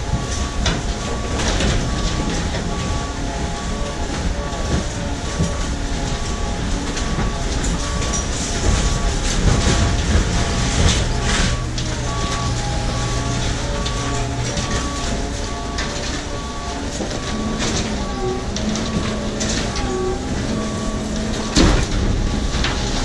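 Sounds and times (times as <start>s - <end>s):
short warning beep: 0.0s - 23.0s
truck engine and hydraulics: 0.0s - 23.0s.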